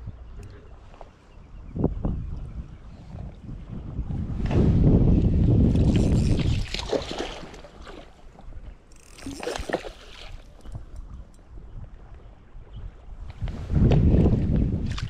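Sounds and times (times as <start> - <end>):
water splashing and sloshing: 5.7 - 11.4, 13.2 - 15.0.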